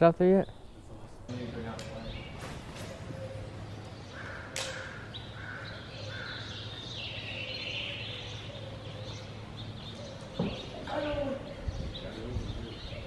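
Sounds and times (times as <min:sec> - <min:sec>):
birds chirping: 0:00.0 - 0:13.0
sharp click: 0:04.6 - 0:04.8.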